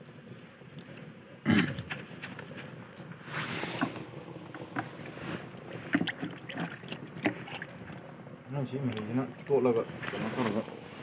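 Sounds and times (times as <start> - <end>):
water sloshing and splashing: 0.0 - 11.0
hands squeezing leaves in water: 1.8 - 8.1.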